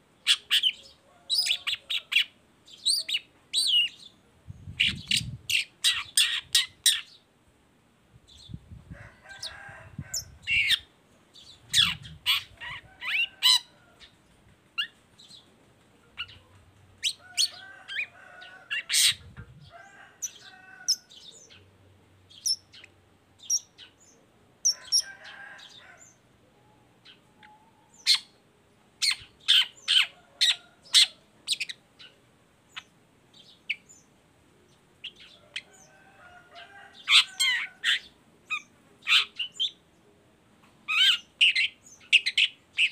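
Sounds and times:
bird chirps and chattering song: 0:00.2 - 0:07.2, 0:10.1 - 0:14.2, 0:16.2 - 0:18.1, 0:22.3 - 0:26.2, 0:29.0 - 0:34.1, 0:34.7 - 0:35.9, 0:36.6 - 0:39.8, 0:40.9 - 0:42.9.

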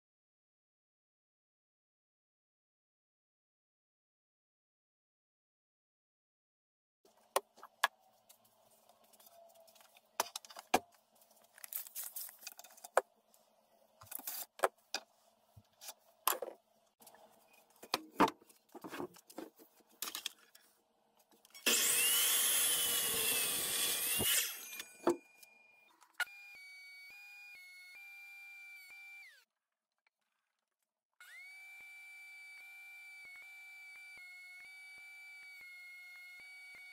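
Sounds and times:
miter saw cutting wood: 0:21.6 - 0:29.4, 0:31.2 - 0:36.9.

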